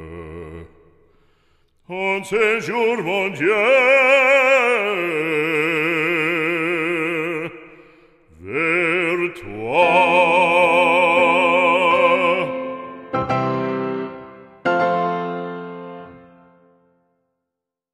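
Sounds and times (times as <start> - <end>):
operatic singing with vibrato: 1.8 - 15.1.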